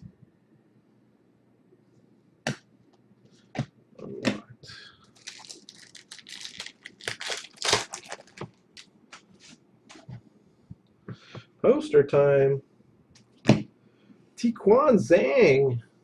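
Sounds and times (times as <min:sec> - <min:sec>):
foil wrapper crinkling and tearing: 0:05.1 - 0:09.3.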